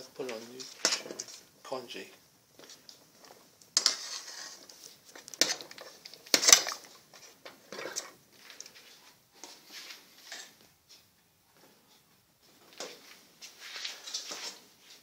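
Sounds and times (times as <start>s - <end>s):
metal ladle scraping a pot: 3.7s - 8.2s.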